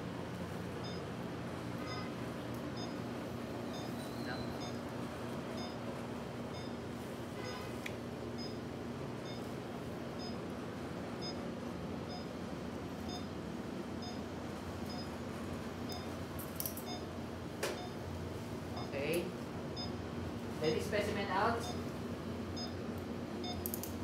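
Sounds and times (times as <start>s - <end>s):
room hum: 0.0s - 24.0s
patient monitor beeping: 0.8s - 1.1s, 1.8s - 2.2s, 2.8s - 4.9s, 5.5s - 5.9s, 6.5s - 6.8s, 8.4s - 8.6s, 9.2s - 9.5s, 10.1s - 10.5s, 11.1s - 11.4s, 12.0s - 13.3s, 14.0s - 16.2s, 16.8s - 17.1s, 17.7s - 18.0s, 18.7s - 21.9s, 22.5s - 23.8s
sharp clicks: 23.6s - 24.0s.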